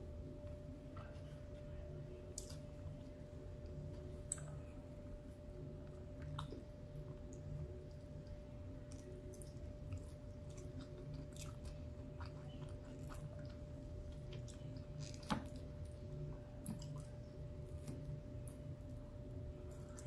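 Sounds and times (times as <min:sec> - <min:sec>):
faint steady hum: 0:00.0 - 0:20.0
person chewing food: 0:05.8 - 0:20.0.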